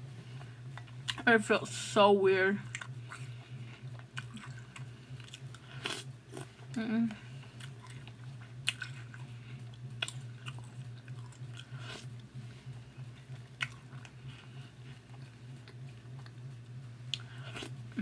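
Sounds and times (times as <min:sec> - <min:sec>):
steady low hum: 0:00.0 - 0:18.0
person chewing cereal: 0:02.6 - 0:06.8, 0:07.4 - 0:16.4, 0:17.1 - 0:18.0.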